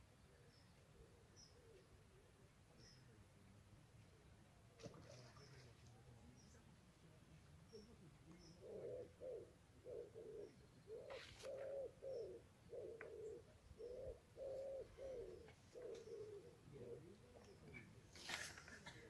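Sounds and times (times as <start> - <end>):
pigeon cooing: 7.8 - 17.6.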